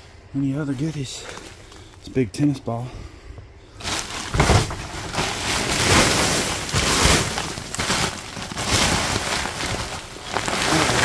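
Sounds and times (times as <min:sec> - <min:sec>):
plastic and paper bags rustling: 0:03.8 - 0:11.0.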